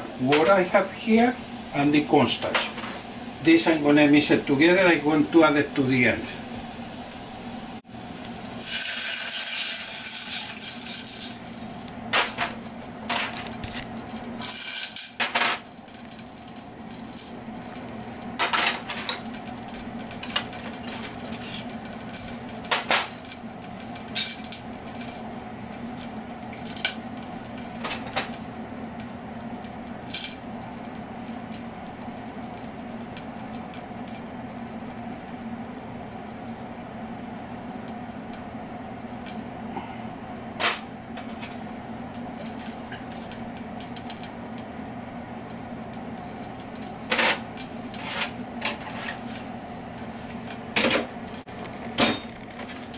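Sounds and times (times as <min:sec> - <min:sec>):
sizzling in hot oil: 0:00.0 - 0:36.8
steady low hum: 0:00.0 - 0:52.9.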